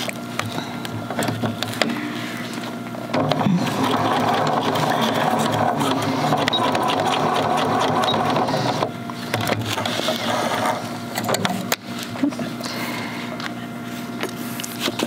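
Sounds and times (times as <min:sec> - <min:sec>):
electric sewing machine stitching: 0:03.1 - 0:09.0, 0:09.7 - 0:11.1.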